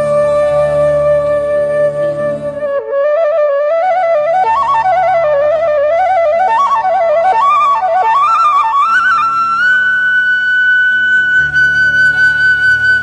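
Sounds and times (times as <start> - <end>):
steady low drone: 0.0 - 2.8
flute melody: 0.0 - 13.0.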